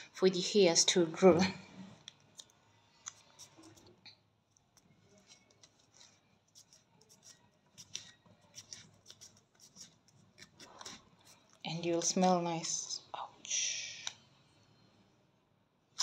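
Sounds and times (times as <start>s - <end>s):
fingers rubbing wax strip: 2.0s - 3.9s, 4.7s - 12.0s.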